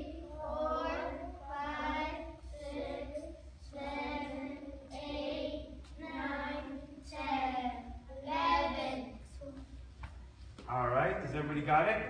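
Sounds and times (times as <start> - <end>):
children counting aloud in unison: 0.0 - 9.6
steady low hum: 0.0 - 12.0.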